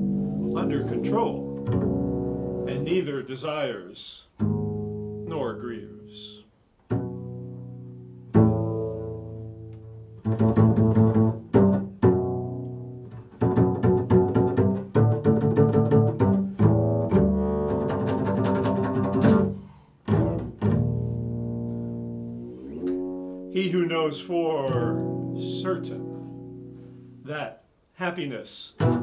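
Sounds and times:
double bass plucked: 0:00.0 - 0:03.2, 0:04.3 - 0:27.4, 0:28.8 - 0:29.0.

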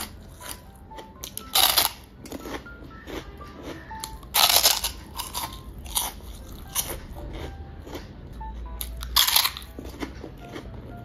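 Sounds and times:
chewing crunches: 0:00.0 - 0:11.0
biting into crispy chip: 0:01.2 - 0:08.0, 0:08.8 - 0:10.6.

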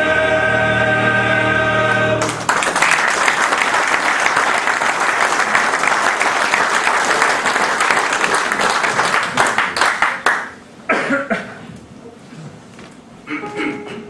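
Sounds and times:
audience applauding: 0:02.2 - 0:10.6.

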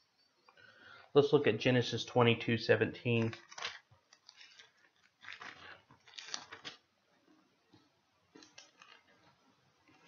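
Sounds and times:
book pages turning: 0:03.1 - 0:06.9, 0:08.3 - 0:10.0.

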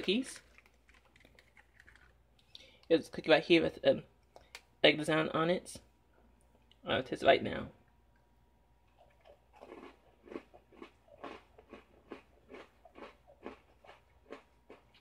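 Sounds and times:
crunchy chewing: 0:00.4 - 0:02.8, 0:08.8 - 0:15.0.

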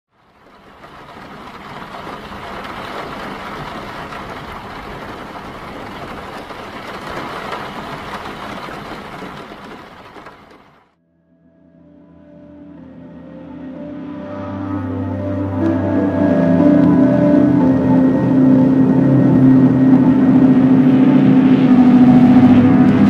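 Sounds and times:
rain pattering: 0:00.1 - 0:11.0, 0:15.6 - 0:23.0.

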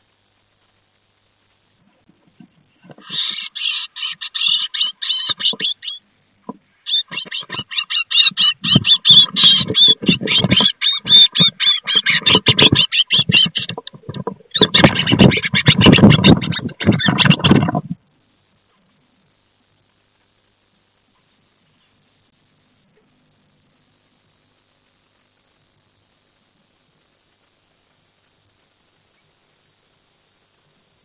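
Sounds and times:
birds chattering calls: 0:02.8 - 0:18.0
birds scuffling in nest box: 0:06.5 - 0:18.0
wings flapping: 0:06.9 - 0:18.0.

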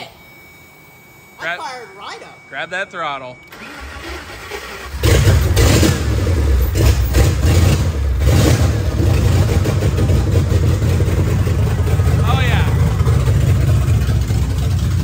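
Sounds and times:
engine revving: 0:03.5 - 0:15.0
engine running loud: 0:03.5 - 0:15.0.

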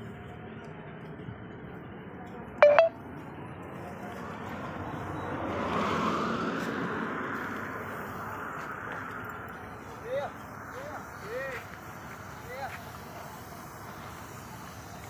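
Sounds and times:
short loud beeps: 0:02.6 - 0:02.9.

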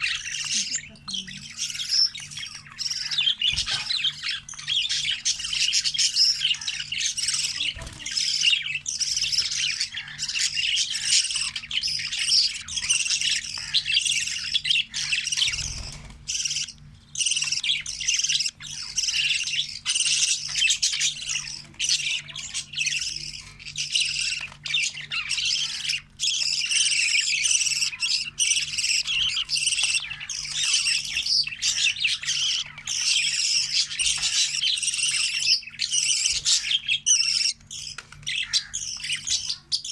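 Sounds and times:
budgerigars chirping and squawking: 0:00.0 - 0:39.9.

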